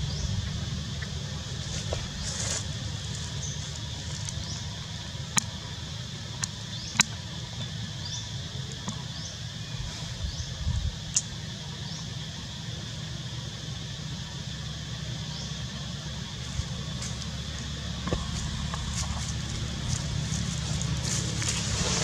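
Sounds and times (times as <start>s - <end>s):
low rumble: 0.0s - 5.1s, 16.2s - 22.0s.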